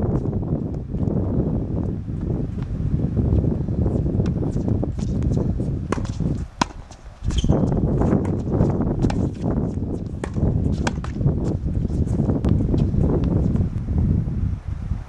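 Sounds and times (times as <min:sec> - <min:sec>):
steady low rumbling noise: 0:00.0 - 0:15.0
tennis ball struck by racket: 0:05.0 - 0:11.3.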